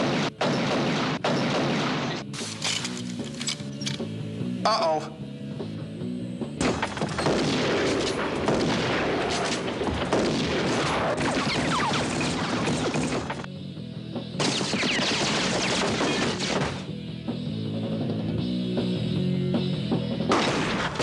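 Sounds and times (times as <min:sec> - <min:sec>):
rapid gunfire: 0:00.0 - 0:02.3, 0:06.6 - 0:13.5, 0:14.4 - 0:16.9.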